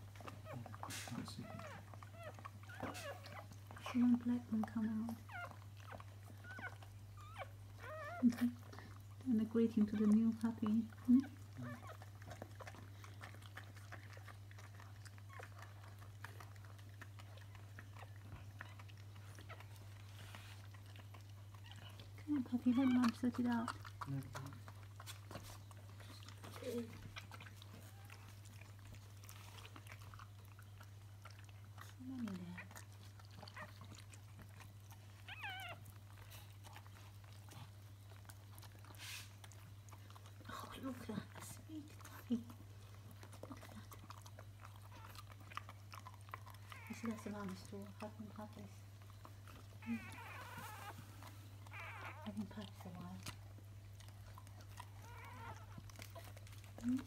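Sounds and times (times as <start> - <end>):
puppy squealing: 5.3 - 8.5, 35.3 - 35.9, 46.4 - 47.5, 49.7 - 52.4, 54.9 - 55.8
dog licking wet smacks: 9.8 - 57.0.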